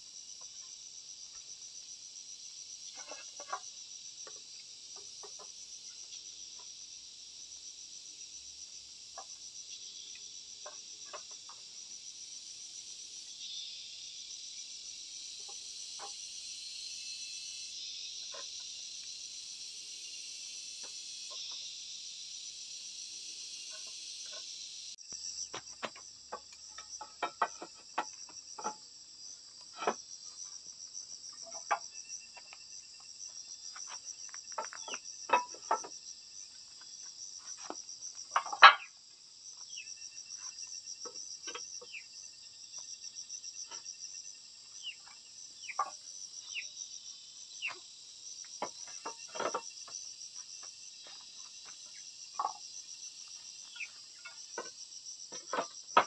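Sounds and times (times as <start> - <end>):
insects chirring: 0.0 - 56.0
clay roof tiles clicking: 25.5 - 28.8, 33.7 - 36.0, 37.6 - 38.9, 55.3 - 56.0.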